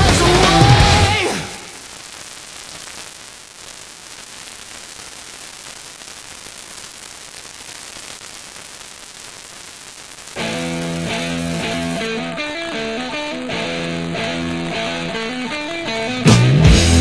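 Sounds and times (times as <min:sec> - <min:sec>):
steady static hiss: 0:00.0 - 0:17.0
guitar music: 0:10.4 - 0:17.0.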